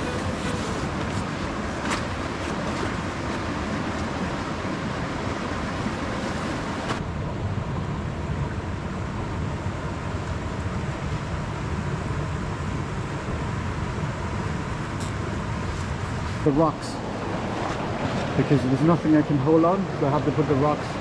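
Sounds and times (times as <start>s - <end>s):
stream and waterfall rushing: 0.0s - 7.0s, 16.2s - 21.0s.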